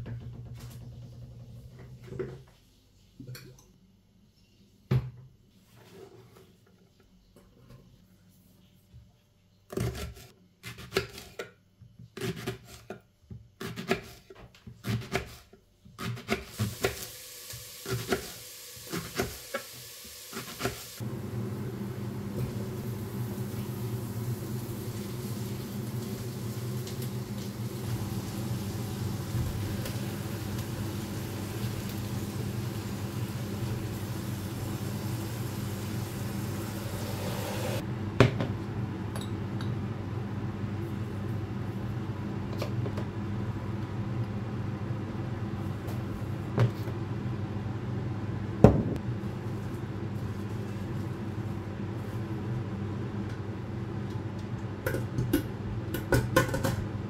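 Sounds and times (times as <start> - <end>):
low hum with hiss: 16.1 - 57.0.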